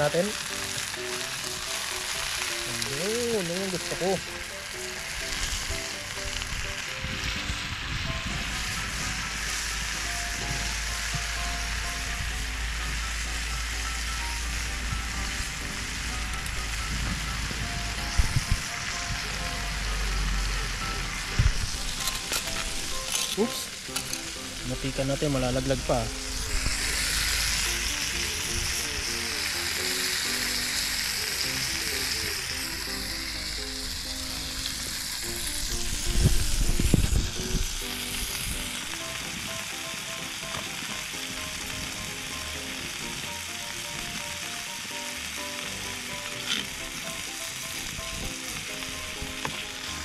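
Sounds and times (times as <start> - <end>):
beef sizzling in a frying pan: 0.0 - 50.0
low rumble: 6.4 - 23.0, 25.4 - 29.4.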